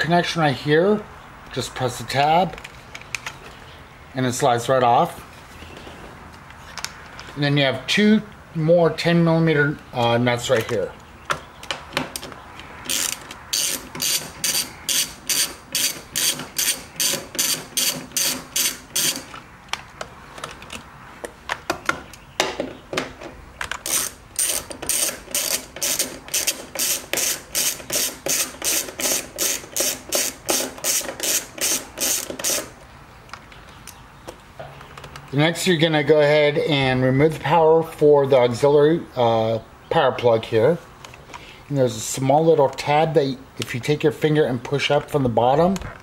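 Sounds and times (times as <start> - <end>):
ratchet pawl clicking: 12.9 - 19.2, 23.8 - 32.7.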